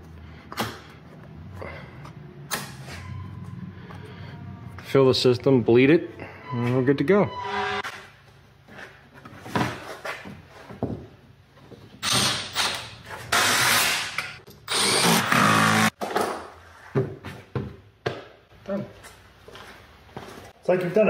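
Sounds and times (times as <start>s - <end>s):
cordless drill driving fasteners: 12.0s - 15.9s.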